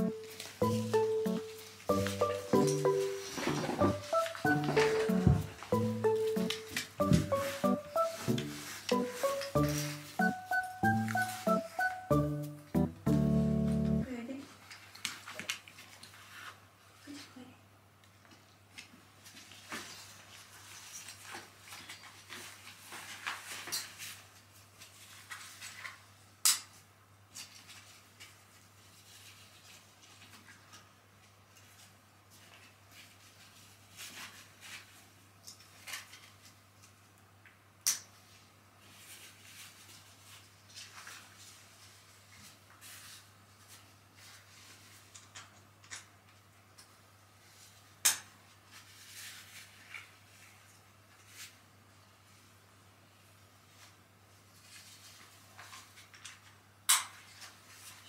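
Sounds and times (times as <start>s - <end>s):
soft rustling: 0.1s - 11.8s
low steady hum: 12.1s - 14.4s.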